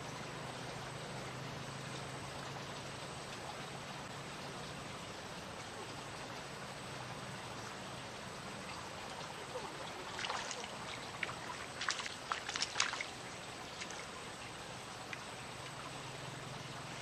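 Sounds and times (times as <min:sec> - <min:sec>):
steady background hiss: 0:00.0 - 0:17.0
fish splashing in water: 0:09.5 - 0:14.2.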